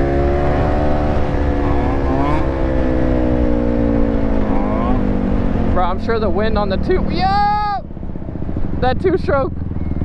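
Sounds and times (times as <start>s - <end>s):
dirt bike engine revving: 0.0s - 7.4s
dirt bike engine running: 0.0s - 10.0s
wind rumbling on microphone: 0.0s - 10.0s.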